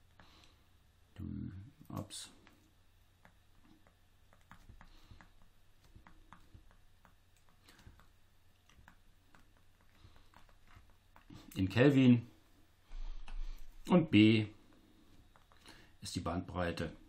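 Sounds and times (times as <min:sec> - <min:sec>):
faint low hum: 0:00.0 - 0:17.0
stylus tapping on pen tablet: 0:03.2 - 0:11.3, 0:15.2 - 0:15.7.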